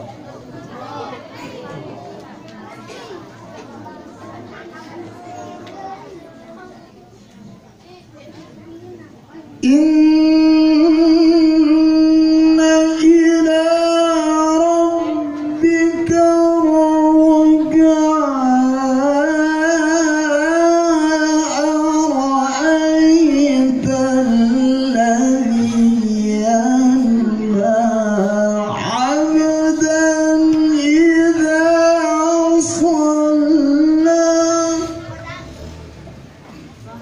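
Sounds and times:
person reciting melodically: 7.8s - 37.0s.

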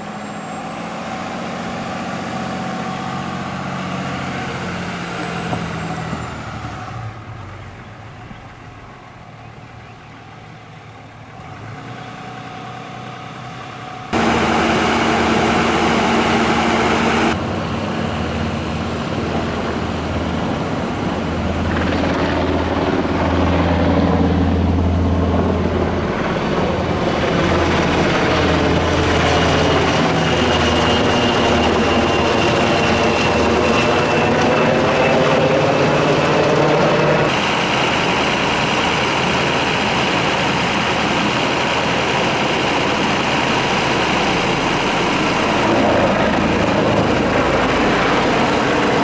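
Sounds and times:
vehicle engines running: 0.0s - 49.0s
helicopter rotor beating: 14.1s - 49.0s.

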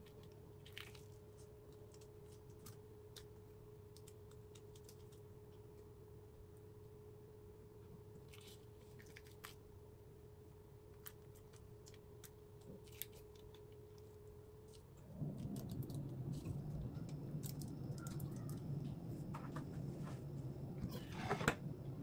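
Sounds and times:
faint steady hum: 0.0s - 22.0s
loud low hum: 15.0s - 22.0s.

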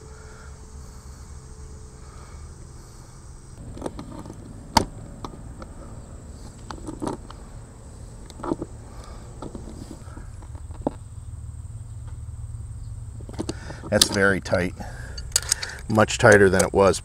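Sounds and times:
low steady background hum: 0.0s - 17.0s
clicks and knocks of handling: 3.6s - 5.7s, 6.5s - 7.4s, 8.2s - 11.0s, 13.2s - 14.3s, 15.2s - 16.8s.

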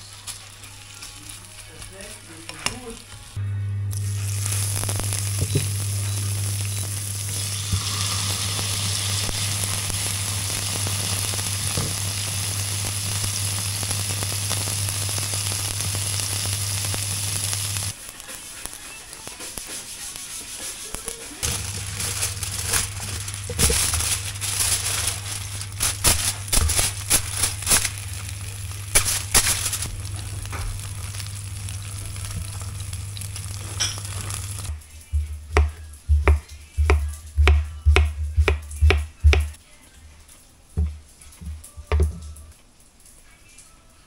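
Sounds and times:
fish sizzling in a frying pan: 0.0s - 3.4s, 4.0s - 35.3s
low hum: 3.4s - 7.6s
knife chopping on wooden board: 35.2s - 39.6s.

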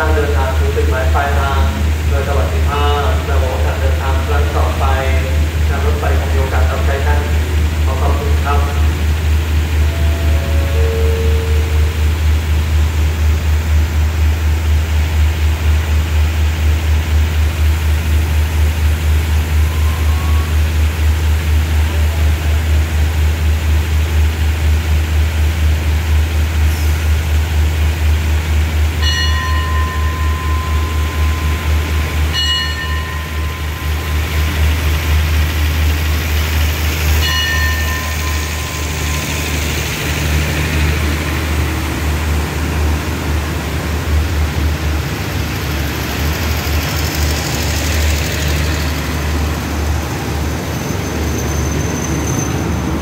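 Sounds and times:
diesel train engine drone: 0.0s - 53.0s
high warning tone: 2.6s - 13.6s, 19.5s - 20.8s, 29.0s - 42.3s.

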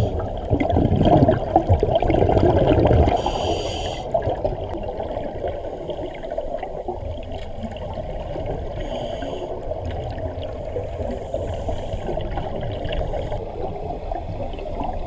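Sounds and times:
scuba regulator bubbling underwater: 0.0s - 8.9s
high hiss of regulator inhale: 3.2s - 4.1s, 8.8s - 9.6s.

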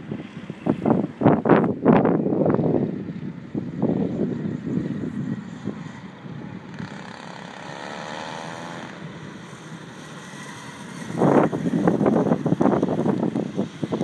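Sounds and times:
wind buffeting microphone: 0.0s - 7.5s, 8.6s - 14.0s
distant kart engine whining: 2.2s - 14.0s.

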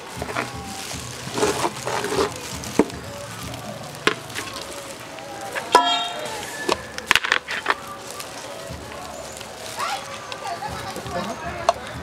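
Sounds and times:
cabbage rustling on plate: 0.0s - 11.9s.

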